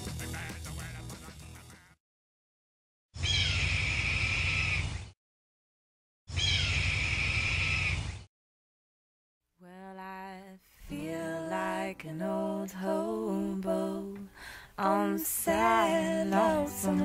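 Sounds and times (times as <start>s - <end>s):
person singing unaccompanied: 9.6s - 17.0s.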